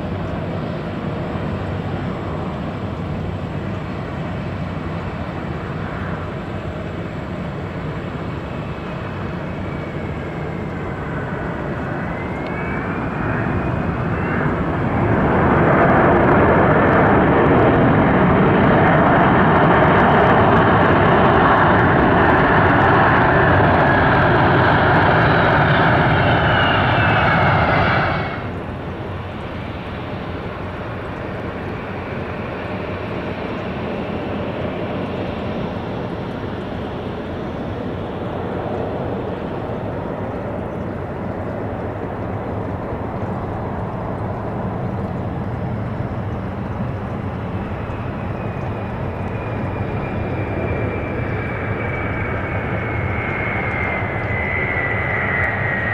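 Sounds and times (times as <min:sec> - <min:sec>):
jet engine roar: 0:00.0 - 0:55.9
distant jet hum: 0:08.5 - 0:55.9.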